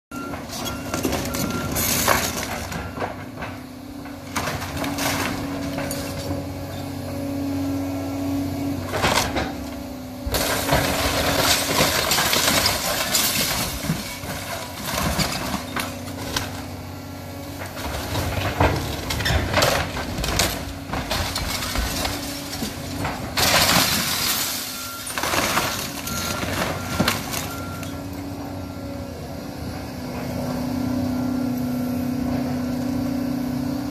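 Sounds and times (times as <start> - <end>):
excavator diesel engine: 0.1 - 33.9
debris crashing down: 0.3 - 6.3, 10.2 - 16.8, 17.6 - 28.0.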